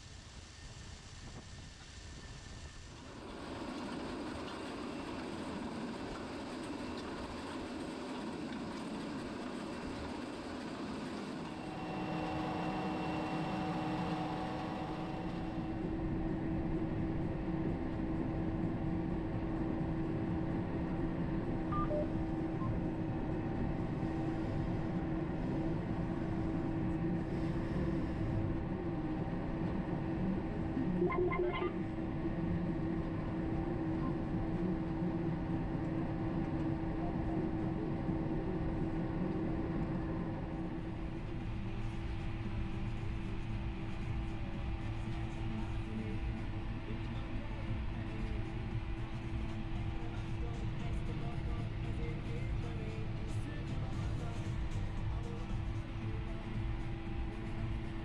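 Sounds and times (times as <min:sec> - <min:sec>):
mechanical whine: 0:00.0 - 0:58.0
tractor diesel engine drone: 0:03.1 - 0:58.0
electronic beep: 0:21.7 - 0:22.8, 0:30.9 - 0:31.8.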